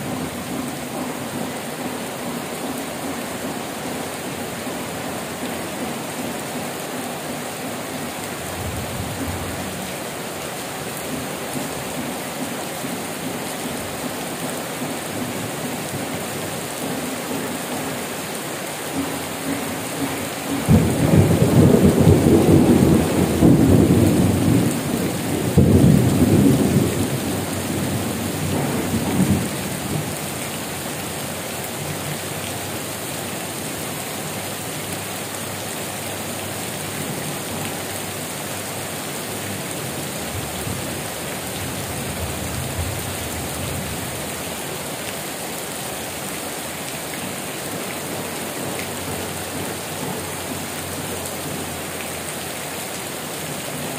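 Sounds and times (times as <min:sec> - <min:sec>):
heavy rain on leaves and metal roofs: 0:00.0 - 0:53.9
thunder rumbling: 0:20.6 - 0:30.2.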